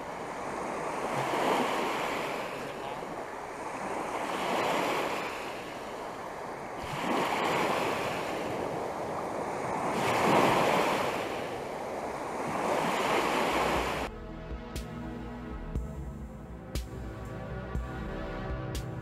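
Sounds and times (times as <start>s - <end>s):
small waves washing on beach: 0.0s - 14.1s.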